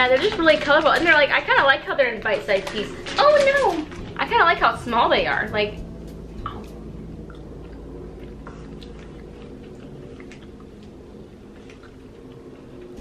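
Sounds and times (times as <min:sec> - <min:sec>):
low room hum: 0:00.0 - 0:13.0
chewing gummy candies: 0:06.4 - 0:13.0.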